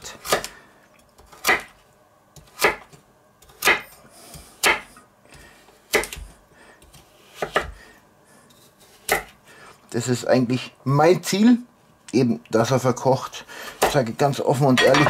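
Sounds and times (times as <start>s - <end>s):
knife chopping on wooden board: 1.3s - 1.7s, 2.4s - 3.9s, 4.6s - 4.9s, 5.9s - 6.3s, 6.9s - 7.8s, 9.0s - 9.3s.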